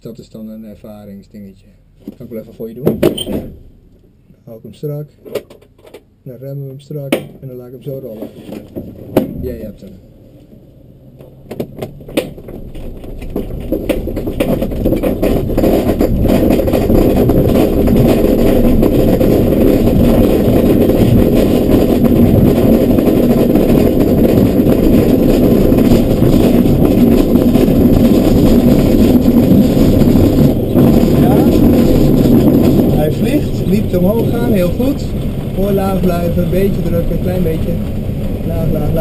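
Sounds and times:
knocks and rattles: 2.8s - 3.7s, 5.2s - 6.1s, 11.2s - 39.0s
wheel rumbling over grass: 10.5s - 39.0s.

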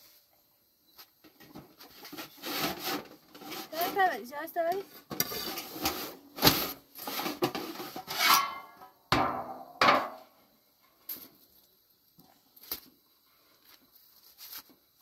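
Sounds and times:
metal trays clanking and scraping: 5.1s - 10.2s.

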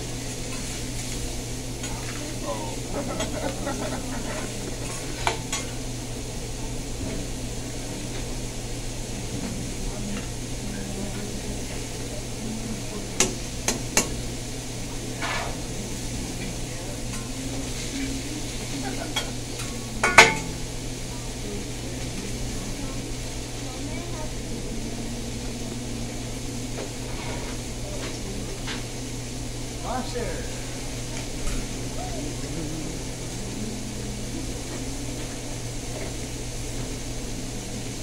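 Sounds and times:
steady low hum: 0.0s - 38.0s
vegetables sizzling on griddle: 0.0s - 38.0s.

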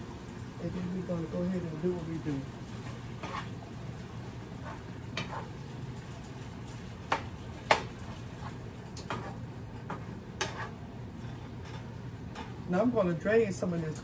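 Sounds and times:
faint frying sizzle: 0.0s - 14.0s
spatula knocking against pan: 7.0s - 8.0s.

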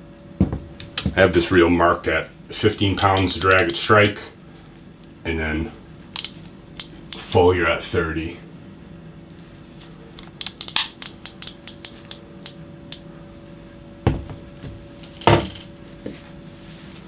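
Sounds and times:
fishing reel clicking: 3.0s - 4.2s, 10.4s - 13.0s.

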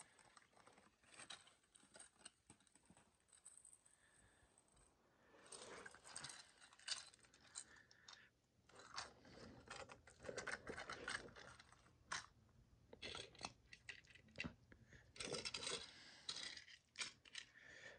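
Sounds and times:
plastic toy train clicking: 15.2s - 17.5s.

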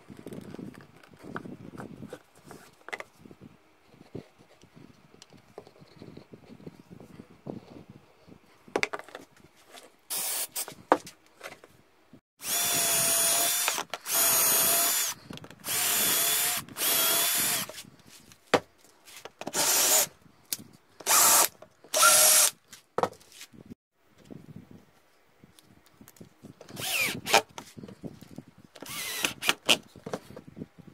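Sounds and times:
cordless drill whining: 10.1s - 10.6s, 12.4s - 17.8s, 19.5s - 20.1s, 21.0s - 22.6s, 26.7s - 27.5s, 28.8s - 29.8s.

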